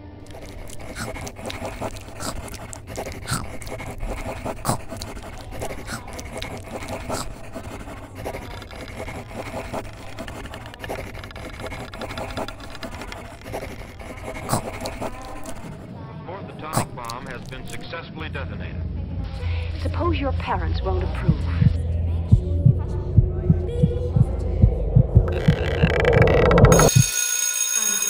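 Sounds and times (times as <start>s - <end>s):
scraping and scratching: 0.0s - 15.9s, 16.8s - 17.9s
irregular clicks and taps: 0.3s - 15.8s, 25.2s - 27.2s.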